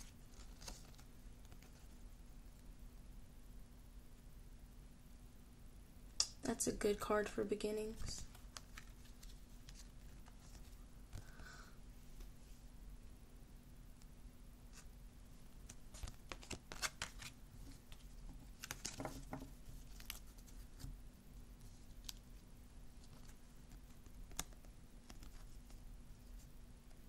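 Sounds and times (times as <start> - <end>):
cards sliding and flicking: 15.7 - 18.0.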